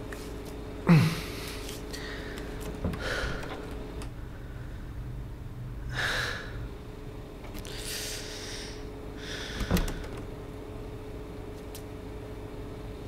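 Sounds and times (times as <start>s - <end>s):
faint steady hum: 0.0s - 13.0s
man breathing heavily: 0.9s - 5.0s, 5.8s - 6.7s, 7.6s - 10.2s.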